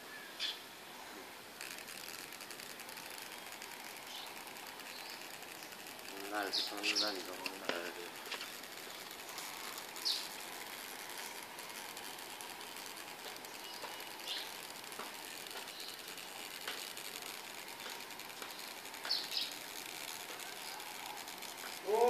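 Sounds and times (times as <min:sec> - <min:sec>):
steady background hiss: 0:00.0 - 0:22.0
small bird chirping: 0:00.1 - 0:00.7, 0:01.6 - 0:22.0.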